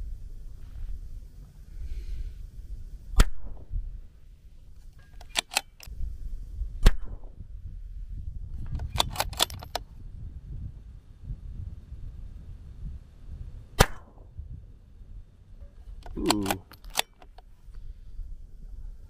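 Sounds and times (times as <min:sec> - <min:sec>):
metallic clicks of rifle bolt: 0:04.8 - 0:05.9, 0:08.6 - 0:09.9, 0:15.8 - 0:17.6
rifle shots with echo: 0:13.8 - 0:14.3.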